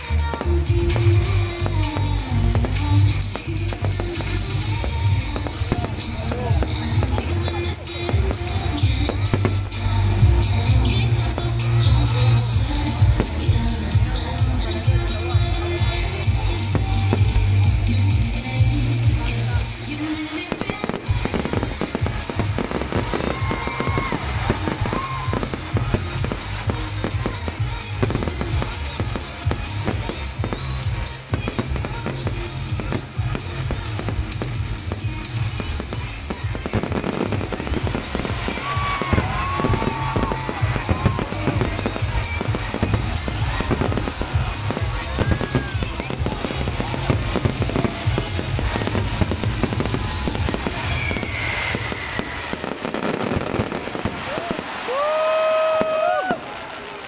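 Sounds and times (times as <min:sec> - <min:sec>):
music with strong bass: 0:00.0 - 0:52.0
fireworks bangs and crackles: 0:00.0 - 0:57.0
falling firework whistle: 0:49.8 - 0:56.6.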